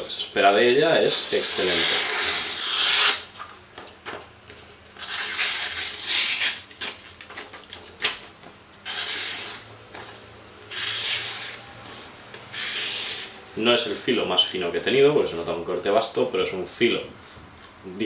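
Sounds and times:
knife slicing paper: 5.0 - 7.0, 8.8 - 9.7, 10.7 - 13.4.

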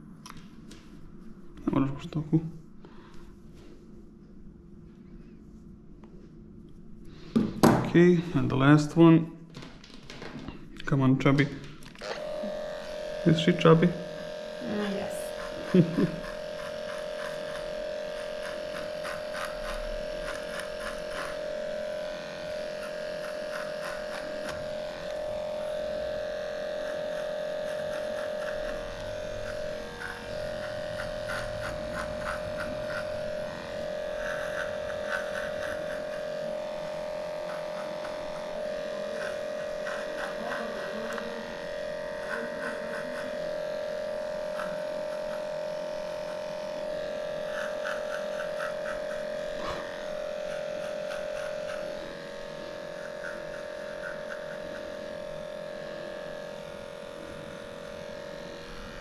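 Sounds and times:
dog clippers humming: 7.3 - 59.0.

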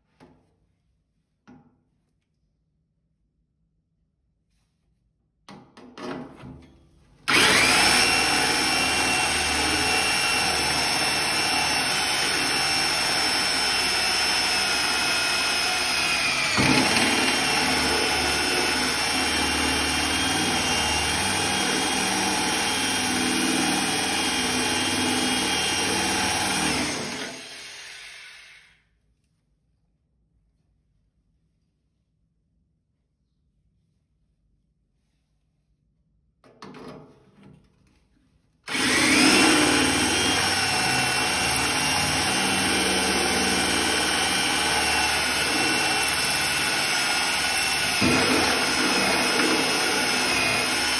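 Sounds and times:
power drill cutting steel: 7.3 - 28.8, 38.7 - 50.9.

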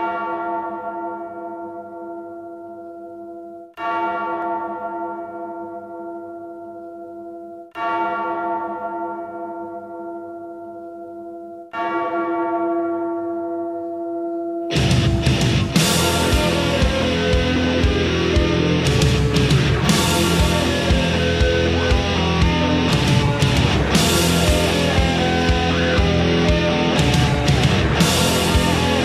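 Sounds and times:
deep bell tolling: 7.8 - 29.0.

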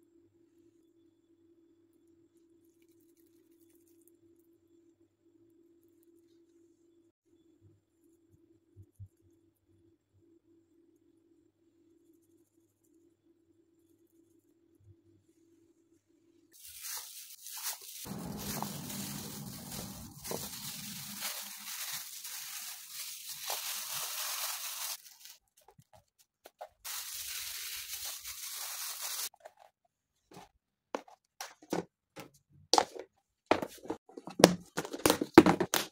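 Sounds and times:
cling film crinkling: 16.6 - 29.4.

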